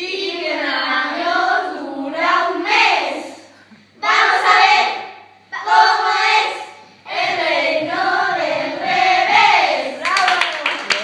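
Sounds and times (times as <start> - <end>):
children singing: 4.0 - 9.9.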